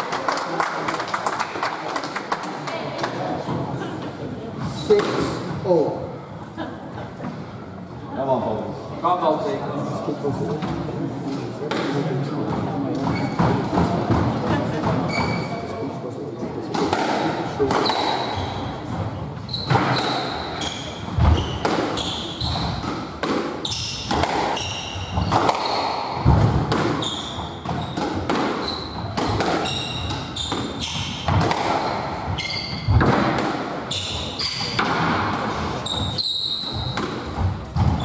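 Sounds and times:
shoes squeaking on wooden floor: 13.0 - 13.8, 14.9 - 15.7, 17.8 - 22.9, 27.0 - 33.0, 33.9 - 34.8, 35.6 - 38.0
squash ball hit by rackets: 16.7 - 18.4, 19.6 - 20.5, 21.1 - 36.1, 36.7 - 38.0.

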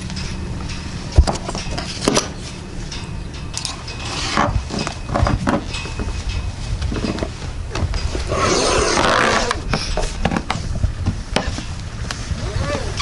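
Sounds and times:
steady low rumble: 0.0 - 13.0
metal clips clinking and clicking: 1.4 - 4.0.

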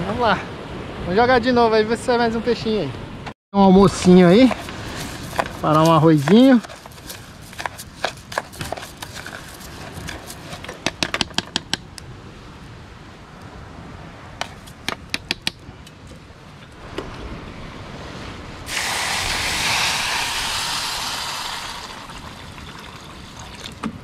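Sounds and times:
loud rushing hiss: 18.7 - 22.2.

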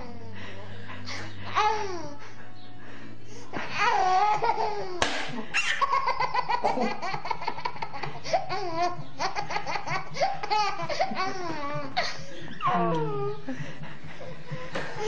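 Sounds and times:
baby laughing: 3.6 - 13.4.

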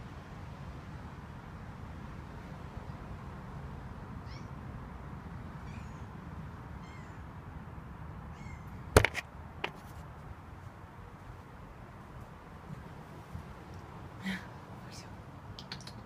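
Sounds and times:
camera handling knocks: 9.0 - 9.8.

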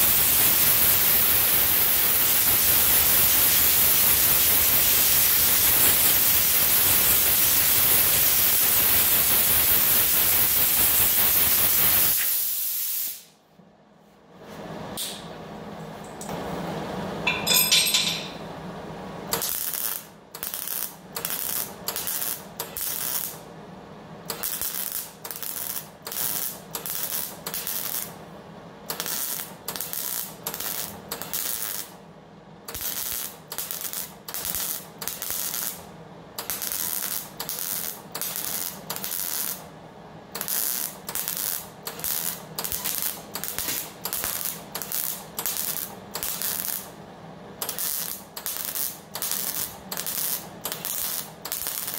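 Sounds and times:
welder crackling bursts: 0.0 - 13.3, 19.3 - 23.4, 24.2 - 28.2, 28.9 - 32.0, 32.7 - 39.7, 40.3 - 47.0, 47.6 - 51.9.

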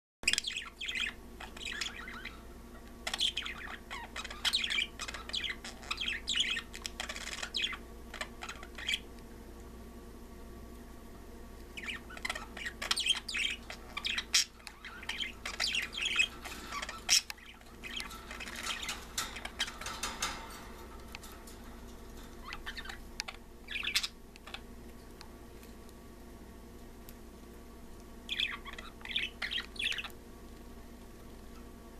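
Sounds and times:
budgies chirping and chattering: 0.3 - 9.1, 11.8 - 24.7, 28.3 - 30.2.

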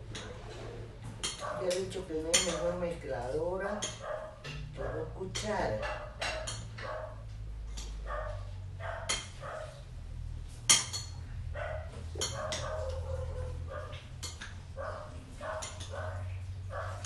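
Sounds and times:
spoon clinking on glass: 2.3 - 2.6, 6.2 - 6.7, 12.2 - 12.7.

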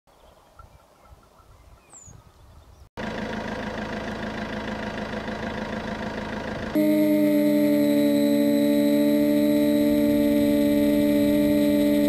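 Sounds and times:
loud steady engine-like drone: 3.0 - 12.0.

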